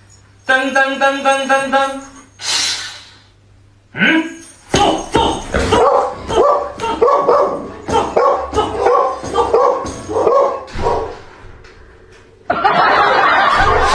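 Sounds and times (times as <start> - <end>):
dog barking: 5.7 - 11.2.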